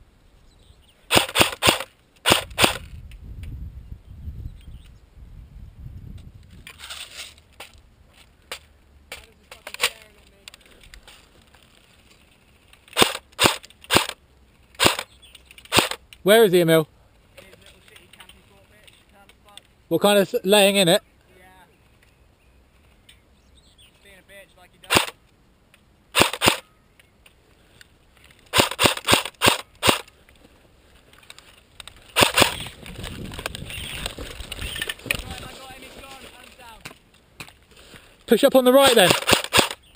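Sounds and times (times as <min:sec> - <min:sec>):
airsoft rifle firing: 0:01.1 - 0:02.9, 0:12.9 - 0:14.2, 0:14.8 - 0:15.1, 0:15.7 - 0:16.0, 0:24.9 - 0:25.2, 0:26.1 - 0:26.7, 0:28.5 - 0:30.1, 0:32.1 - 0:32.7, 0:38.8 - 0:39.9
rustling through grass: 0:27.4 - 0:39.9
plastic magazine clicks: 0:39.0 - 0:39.9.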